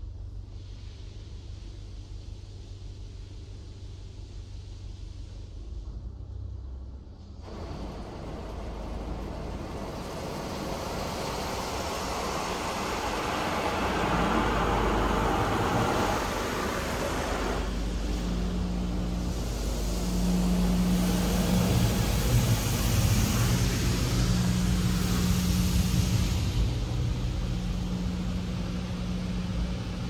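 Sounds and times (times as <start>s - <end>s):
low machine hum: 0.0s - 30.0s
car wash rushing hiss: 7.1s - 30.0s.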